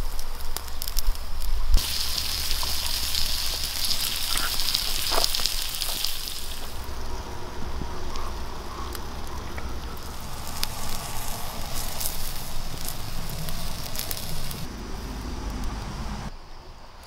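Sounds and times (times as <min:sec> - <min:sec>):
wood fire crackling pops: 0:00.0 - 0:06.9, 0:07.8 - 0:14.7
sauce sizzling and bubbling: 0:01.7 - 0:14.7.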